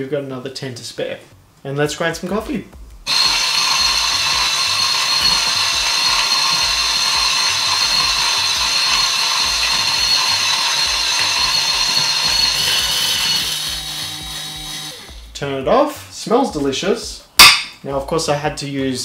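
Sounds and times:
coffee grinder grinding beans: 0:03.1 - 0:15.3.

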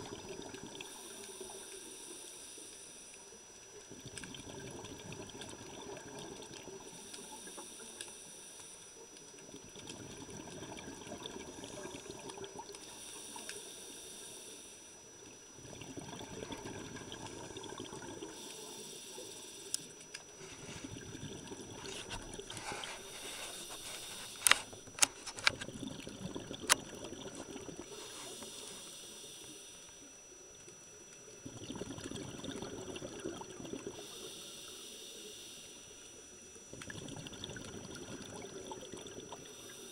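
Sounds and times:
regulator hissing on inhale: 0:00.5 - 0:03.4, 0:05.9 - 0:09.0, 0:12.7 - 0:15.3, 0:18.1 - 0:25.6, 0:27.3 - 0:30.2, 0:33.7 - 0:36.6, 0:38.1 - 0:39.9
bubbles rushing: 0:15.6 - 0:18.2, 0:20.8 - 0:22.5, 0:25.6 - 0:27.9, 0:31.4 - 0:34.0, 0:36.7 - 0:39.5.

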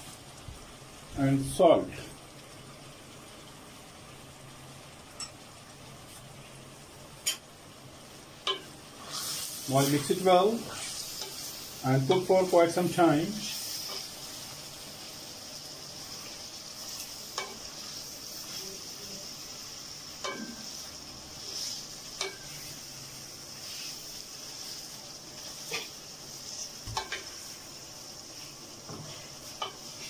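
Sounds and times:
chicken sizzling in oil: 0:00.0 - 0:30.0
spatula scraping a pot: 0:25.6 - 0:27.2.

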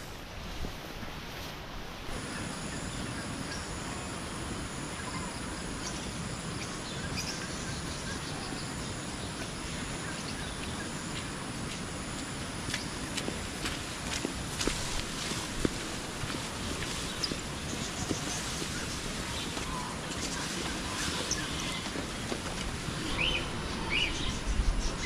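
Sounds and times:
insect sounds: 0:02.1 - 0:25.0.

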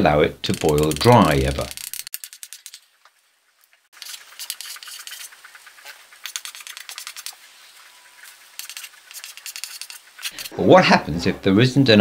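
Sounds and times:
chalk scratching on blackboard: 0:04.0 - 0:07.4, 0:08.6 - 0:10.6.

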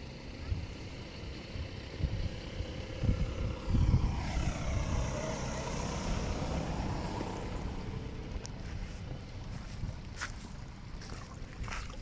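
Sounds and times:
wind buffeting microphone: 0:00.4 - 0:12.0
water flowing over gravel: 0:10.0 - 0:12.0.

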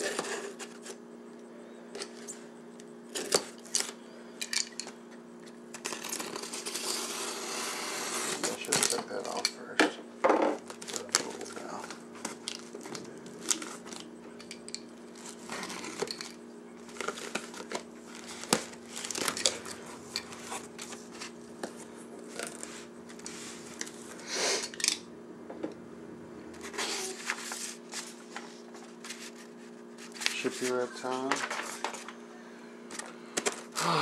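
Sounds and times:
steady low hum: 0:00.0 - 0:34.0
packing tape tearing: 0:05.7 - 0:09.4, 0:10.6 - 0:21.4.

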